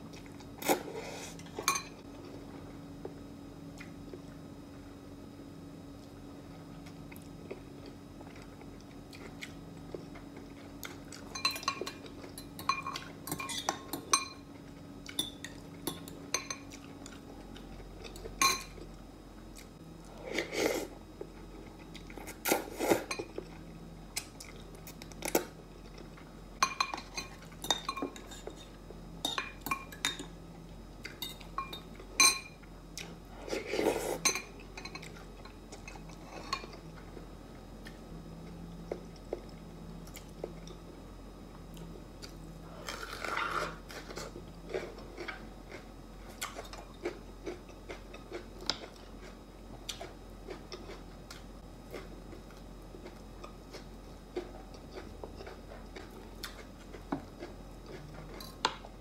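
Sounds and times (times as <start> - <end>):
cutlery clinking on glass bowl: 11.3 - 14.4.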